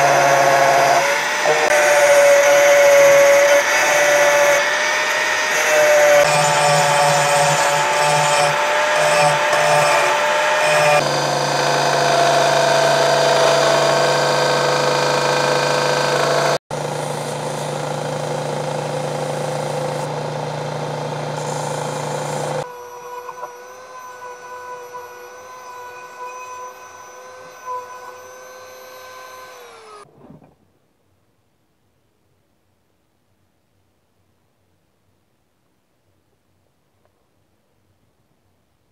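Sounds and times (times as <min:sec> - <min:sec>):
angle grinder grinding steel: 0:00.0 - 0:30.1
belt grinder running: 0:00.0 - 0:30.1
rotary tool high whine: 0:00.0 - 0:30.1.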